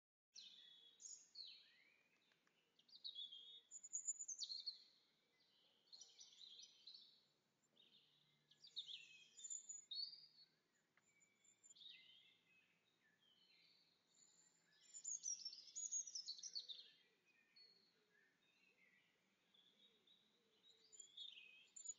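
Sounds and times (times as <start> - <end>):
songbirds twittering: 0.4 - 21.9.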